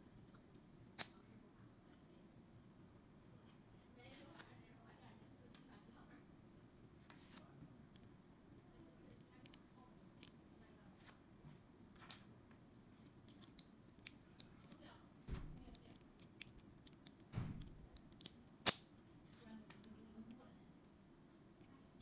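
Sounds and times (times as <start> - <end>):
plastic bricks clicking together: 13.3 - 14.5.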